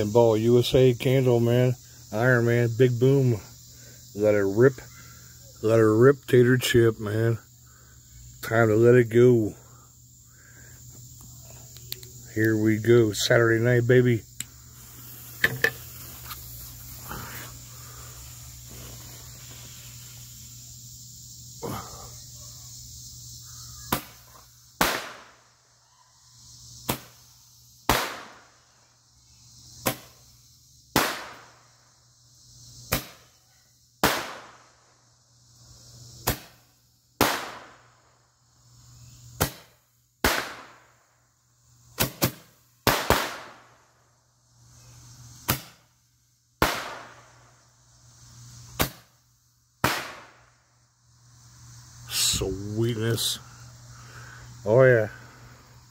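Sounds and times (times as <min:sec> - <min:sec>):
firework bangs: 0:24.8 - 0:25.4, 0:27.9 - 0:28.6, 0:30.9 - 0:31.6, 0:34.0 - 0:34.7, 0:37.2 - 0:37.9, 0:39.4 - 0:40.9, 0:42.0 - 0:43.7, 0:46.6 - 0:47.3, 0:49.8 - 0:50.5.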